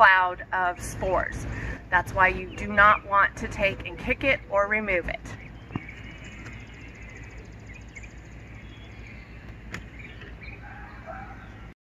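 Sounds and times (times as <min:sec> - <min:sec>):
steady low hum: 0:00.0 - 0:11.8
birds chirping: 0:01.5 - 0:11.7
fast high bird trill: 0:05.4 - 0:11.2.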